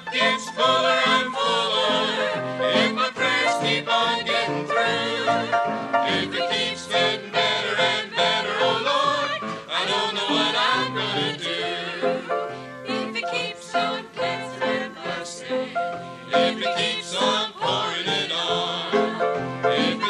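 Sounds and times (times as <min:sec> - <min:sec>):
choir singing gospel: 0:00.0 - 0:20.0.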